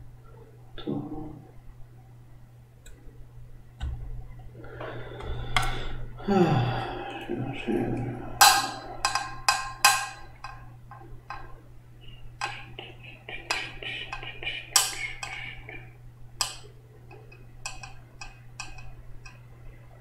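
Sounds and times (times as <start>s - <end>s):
low hum: 0.0s - 20.0s
sharp clicks and taps: 12.4s - 19.4s.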